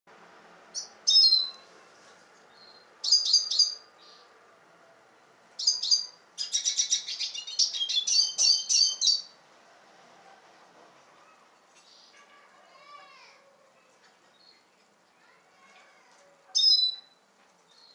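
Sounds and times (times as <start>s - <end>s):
bird chirping and twittering: 0.7s - 1.7s, 2.5s - 4.3s, 5.6s - 9.4s, 11.3s - 12.2s, 13.8s - 15.9s, 16.5s - 17.9s.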